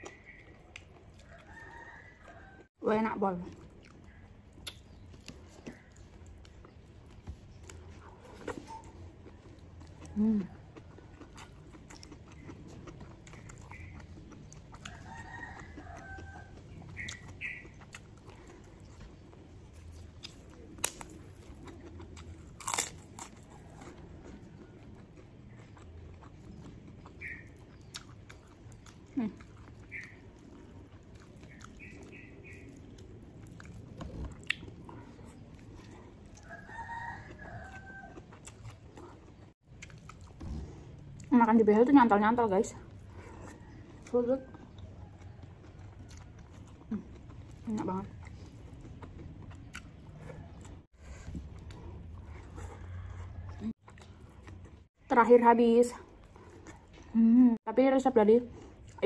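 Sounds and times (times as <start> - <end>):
chewing and crunching crackers: 0.0 - 59.0.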